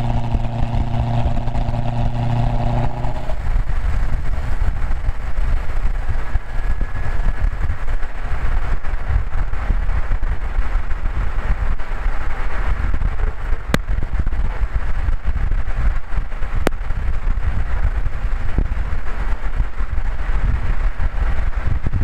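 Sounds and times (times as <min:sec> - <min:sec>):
car engine low rumble: 0:00.0 - 0:22.0
wind noise on microphone: 0:00.0 - 0:22.0.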